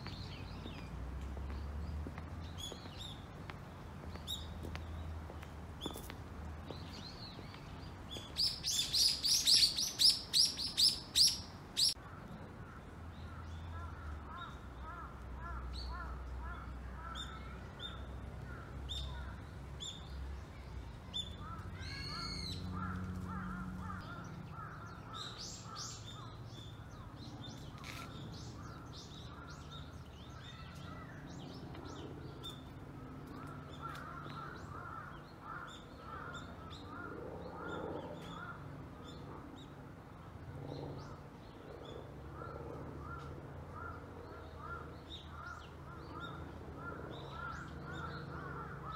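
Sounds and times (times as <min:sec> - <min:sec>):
wild birds calling: 0:07.0 - 0:19.9, 0:21.2 - 0:32.6, 0:33.2 - 0:39.6, 0:41.8 - 0:48.9.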